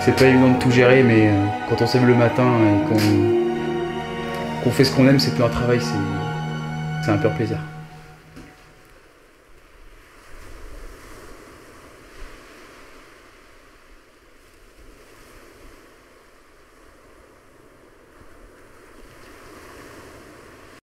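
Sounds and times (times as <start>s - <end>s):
wind: 8.0s - 20.8s.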